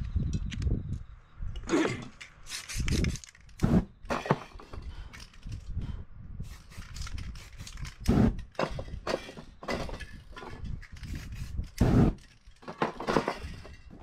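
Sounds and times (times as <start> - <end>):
spray cans hissing: 2.3 - 4.4, 6.4 - 9.3, 10.8 - 12.5
knocks and rustles of handling: 6.8 - 14.0.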